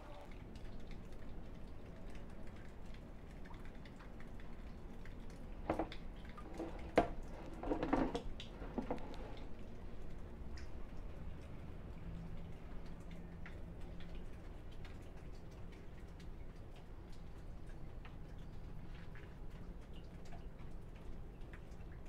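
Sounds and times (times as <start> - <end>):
plastic lid clattering: 6.5 - 9.2.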